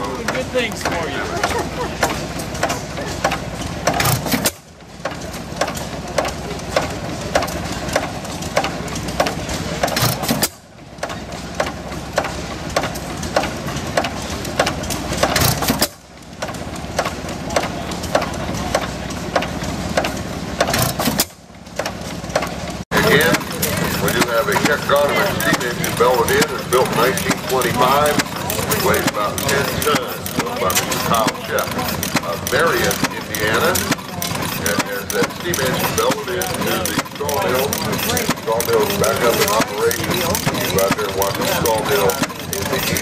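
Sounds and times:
valve gear clicking: 2.0 - 43.0
stationary engine firing: 5.5 - 43.0.

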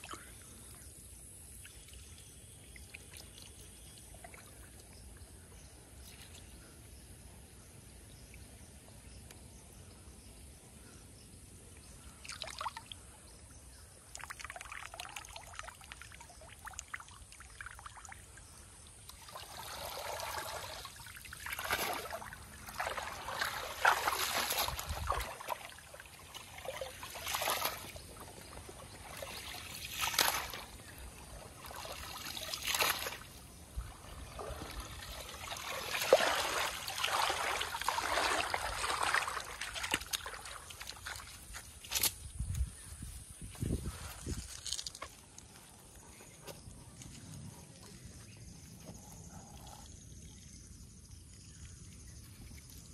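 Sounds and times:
water splashing and sloshing: 1.4 - 6.6, 14.0 - 50.4
water dripping from net: 12.2 - 13.0, 14.1 - 18.2, 18.9 - 31.0, 31.6 - 33.2, 34.3 - 42.1.

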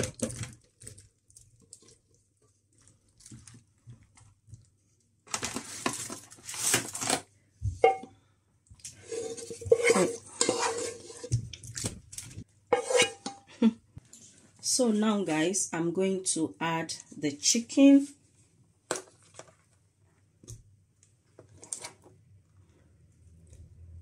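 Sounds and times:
spoon scraping potato mixture: 8.9 - 13.3.

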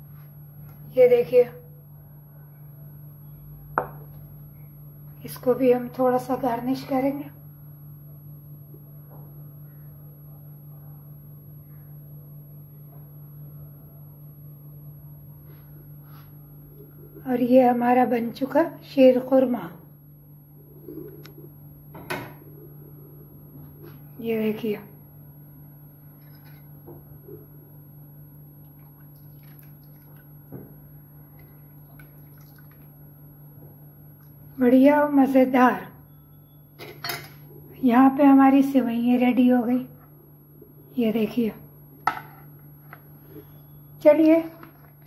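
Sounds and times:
low mechanical hum: 0.0 - 45.0
liquid slopping in a bowl: 28.6 - 33.1.

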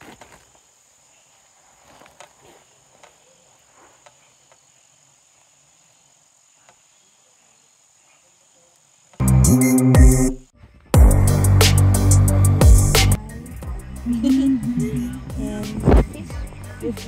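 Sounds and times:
insects droning: 0.0 - 9.4, 13.2 - 17.0
soft rustles and clicks: 1.6 - 4.6
loud background music: 9.2 - 10.4, 11.0 - 17.0.

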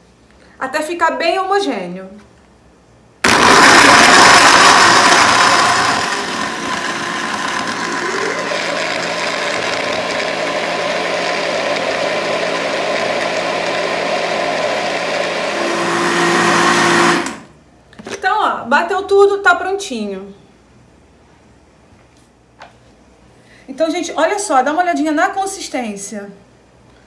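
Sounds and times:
blender motor running: 3.2 - 17.5.

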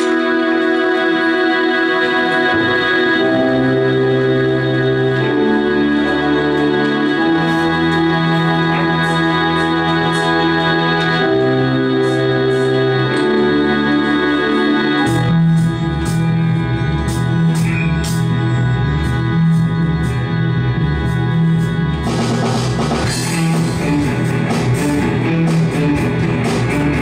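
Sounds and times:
low guitar line: 0.0 - 27.0
sustained keyboard chords: 0.0 - 27.0.

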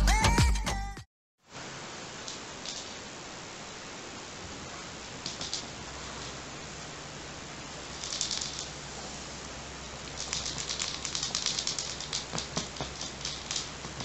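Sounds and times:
quick clicks: 7.9 - 8.8, 10.0 - 14.0
toy crinkly rustling: 7.9 - 8.8, 10.0 - 14.0.

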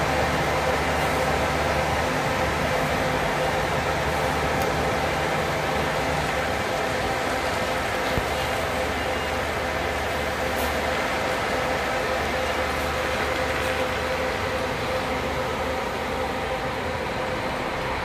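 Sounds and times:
coach engine running: 0.0 - 18.0.

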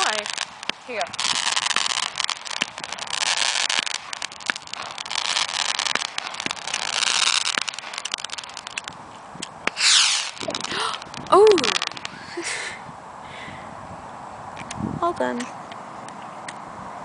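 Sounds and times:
fireworks crackling and popping: 0.0 - 13.2.

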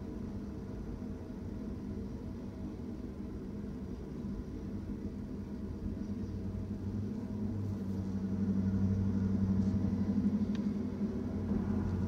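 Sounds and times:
freight train rumbling past: 6.4 - 12.0.

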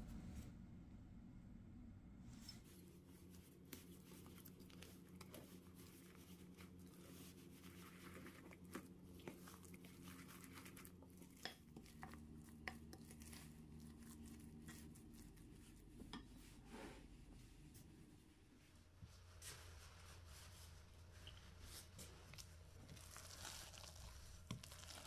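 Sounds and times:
faint wet stirring: 2.4 - 25.0.

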